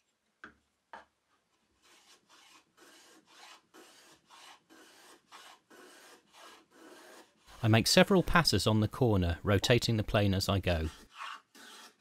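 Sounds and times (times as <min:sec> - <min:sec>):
plane blade scraping wood: 0:01.8 - 0:07.9, 0:10.2 - 0:12.0.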